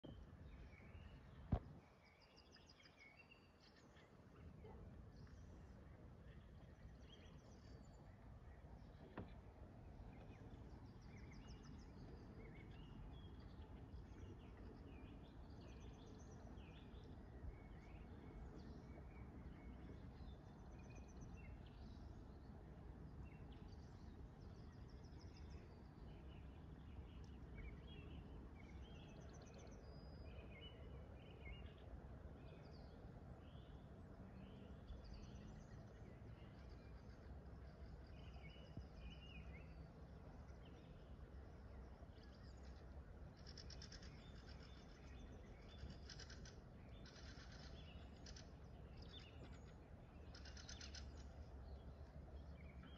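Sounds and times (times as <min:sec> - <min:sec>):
low background noise: 0:00.0 - 0:52.9
birds chirping and trilling: 0:41.8 - 0:52.9.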